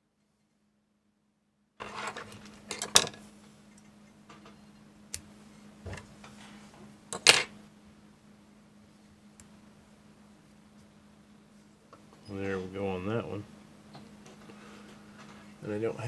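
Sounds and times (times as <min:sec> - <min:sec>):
steady low hum: 0:01.8 - 0:16.0.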